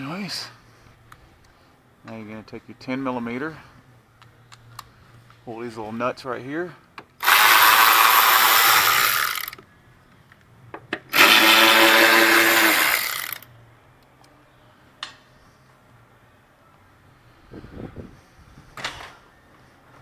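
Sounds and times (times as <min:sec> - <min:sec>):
power tool motor whine: 0:07.2 - 0:09.6, 0:11.1 - 0:13.4.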